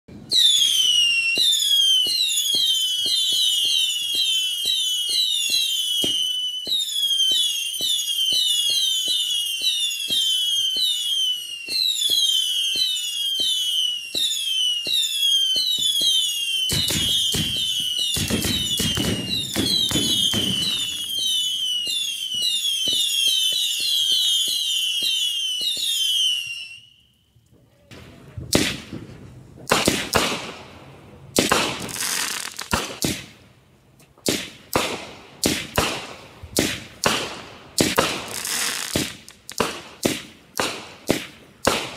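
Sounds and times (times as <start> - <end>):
firework bangs: 0.3 - 26.4, 27.9 - 33.4, 34.2 - 41.9
screaming firework whistles: 0.3 - 27.3
firework popping: 0.4 - 26.3, 27.9 - 30.7, 31.4 - 33.4, 34.2 - 41.9
firework crackle: 0.4 - 27.0, 31.3 - 33.4, 34.2 - 41.9.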